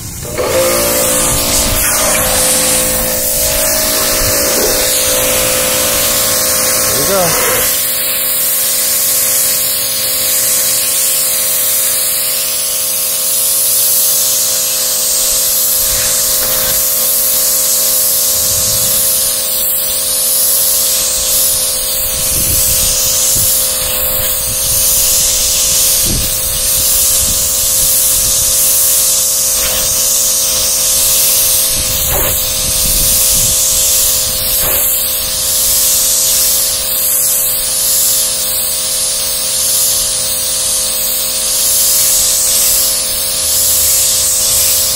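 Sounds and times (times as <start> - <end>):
machine humming: 0.0 - 8.5, 15.5 - 17.5, 21.0 - 35.6
pressure washer spray hissing: 0.0 - 44.9.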